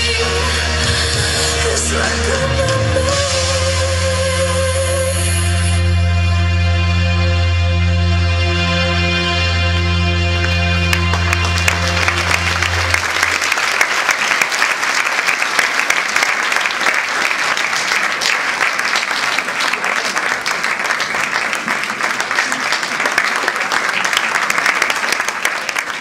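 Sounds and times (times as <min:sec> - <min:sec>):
audience applauding: 0:10.4 - 0:26.0.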